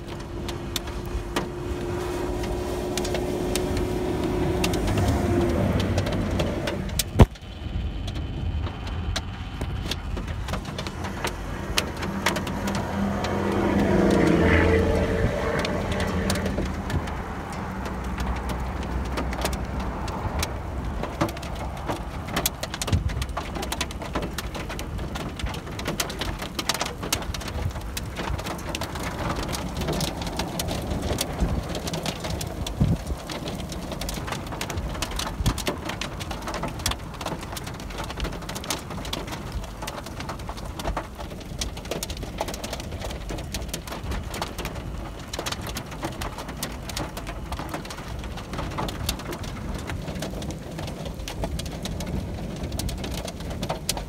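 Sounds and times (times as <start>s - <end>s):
raindrops ticking: 0.0s - 54.0s
wind and rain rushing: 0.0s - 54.0s.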